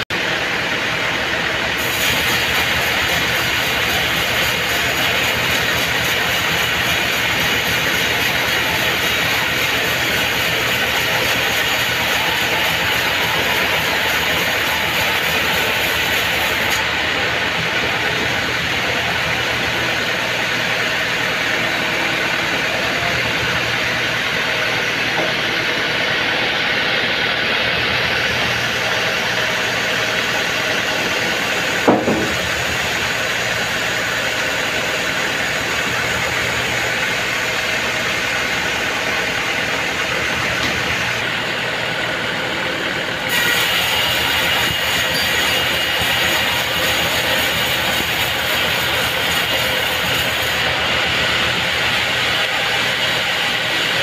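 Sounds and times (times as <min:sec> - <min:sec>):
band saw cutting a log: 0:00.0 - 0:54.0
sharp knock: 0:31.8 - 0:32.5.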